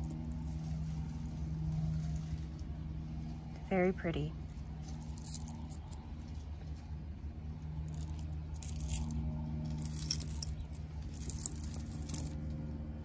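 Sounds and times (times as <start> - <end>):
metal jewelry clinking: 0.0 - 0.5, 4.4 - 6.0, 7.8 - 12.8
steady low hum: 0.0 - 13.0.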